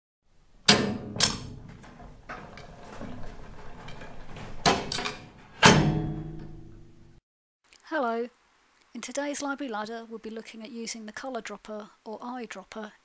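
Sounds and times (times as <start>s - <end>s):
mechanical clunks and clatter: 0.4s - 7.2s
loud knocks: 0.6s - 7.2s.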